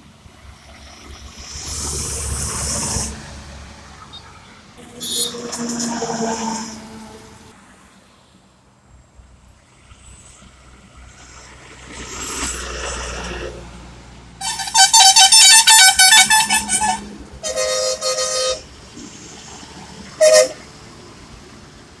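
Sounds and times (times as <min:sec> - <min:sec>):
lorry passing on highway: 0:00.0 - 0:22.0
multi-tone truck horn pulses: 0:04.8 - 0:07.2, 0:14.4 - 0:19.0, 0:20.1 - 0:20.7
low truck horn blast: 0:14.4 - 0:18.8, 0:20.2 - 0:20.6.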